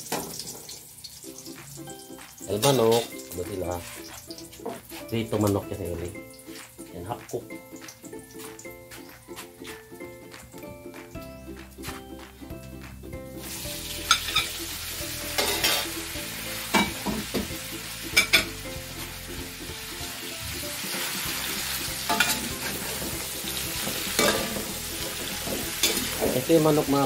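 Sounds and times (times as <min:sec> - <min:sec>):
chicken sizzling in hot oil: 0:00.0 - 0:09.8, 0:13.2 - 0:27.0
spatula scraping a metal pan: 0:15.4 - 0:15.9.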